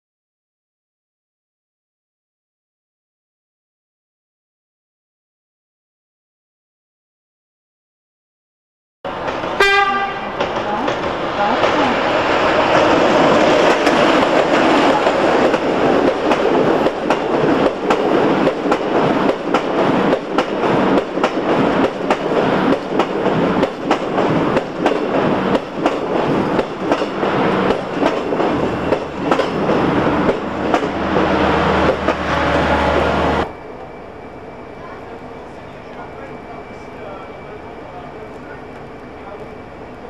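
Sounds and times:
train wheels clicking over rail joints: 10.4 - 11.8, 12.5 - 32.3.

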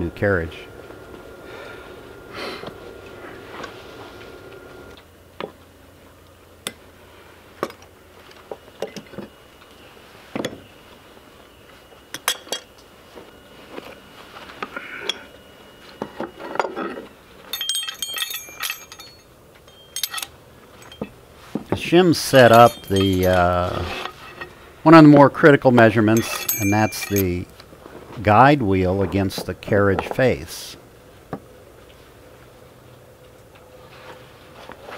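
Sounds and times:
metal tools clinking: 16.5 - 21.2, 21.8 - 25.0, 25.6 - 27.4
high metal jingling: 17.5 - 21.2, 21.8 - 25.1, 25.7 - 27.4.

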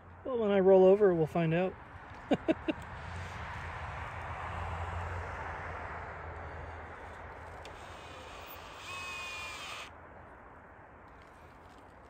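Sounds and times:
drill motor whine: 7.4 - 9.9.

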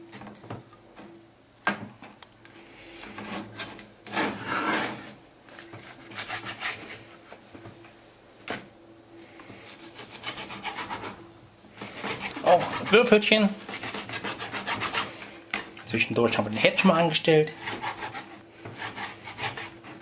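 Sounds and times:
knife sawing through bacon: 5.9 - 7.0, 9.6 - 11.2, 11.8 - 15.2, 17.4 - 20.0.

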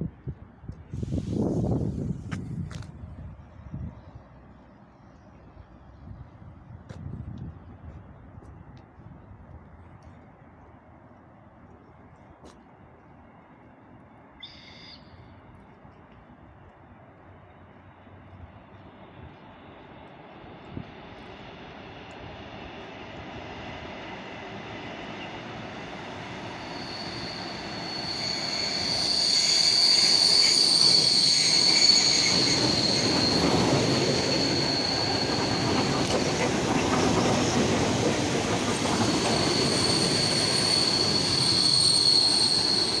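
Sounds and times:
train rumbling past: 0.0 - 43.0
train wheels squealing: 14.3 - 15.5, 18.7 - 43.0.

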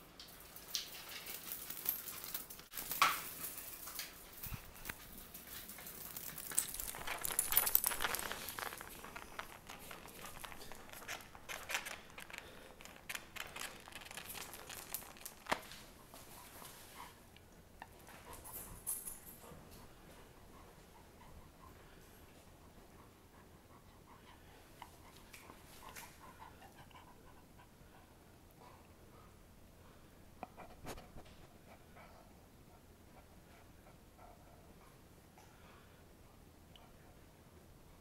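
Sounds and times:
dogs scuffling: 0.3 - 17.0.

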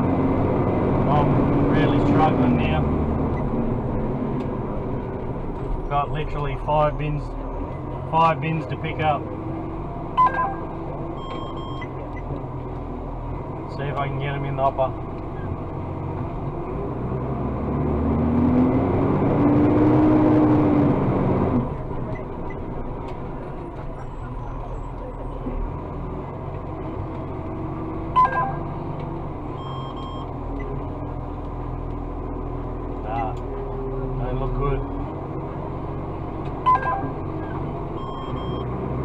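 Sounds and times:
truck engine and hydraulics: 9.3 - 13.7, 34.8 - 39.0.

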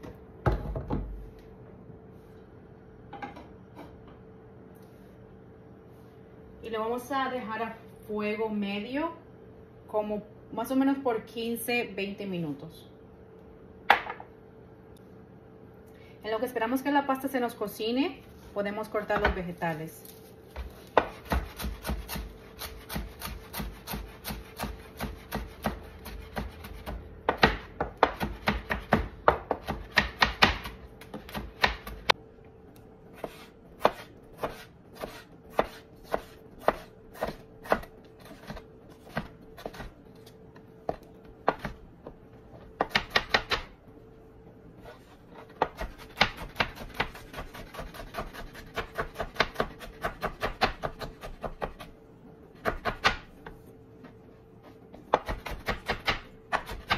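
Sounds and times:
knife chopping on cutting board: 20.6 - 32.2, 33.2 - 40.3, 40.9 - 42.2, 42.8 - 43.7, 44.9 - 51.9, 52.6 - 53.6, 54.7 - 56.9.

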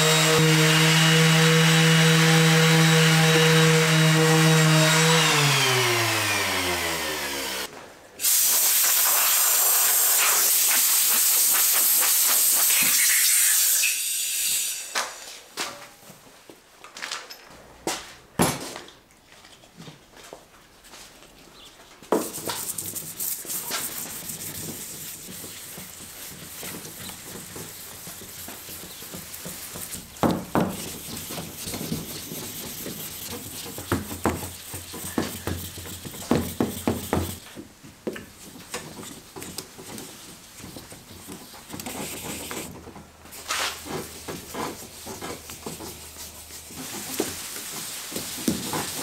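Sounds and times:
wet sandpaper scrubbing: 8.3 - 13.6, 22.2 - 37.4, 41.3 - 42.7.

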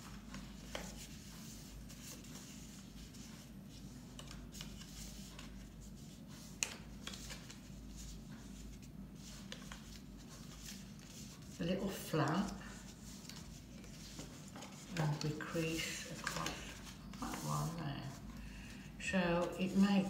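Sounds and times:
card paper rustling: 6.3 - 18.8.

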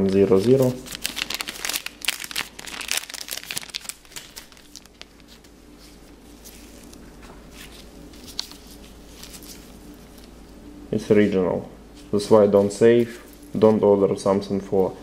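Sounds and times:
thin plastic crinkling: 0.0 - 10.5.

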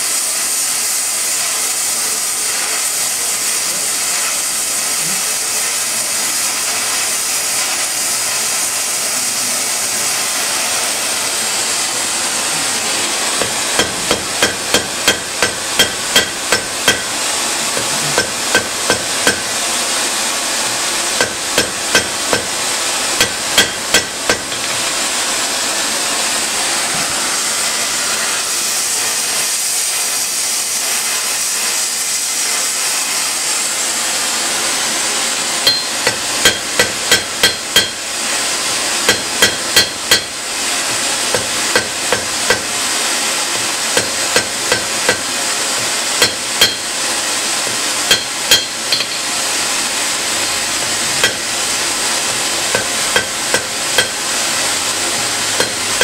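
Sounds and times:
hammer striking steel on anvil: 13.4 - 19.5, 21.2 - 22.6, 23.2 - 25.0, 35.6 - 38.1, 39.1 - 42.7, 43.9 - 47.0, 47.6 - 49.4, 51.2 - 51.5, 52.7 - 54.2, 55.5 - 56.0.

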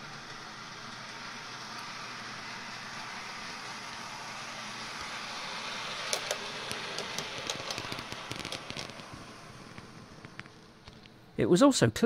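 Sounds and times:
model train motor whirr: 0.0 - 11.1
wheels clicking on track: 4.8 - 11.1.

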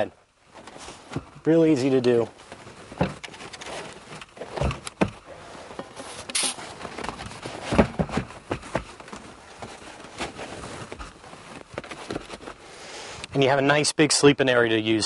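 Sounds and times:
knocks and thumps of cushions: 0.5 - 1.5, 2.4 - 6.0, 6.7 - 12.6
brief hiss: 6.0 - 6.7.

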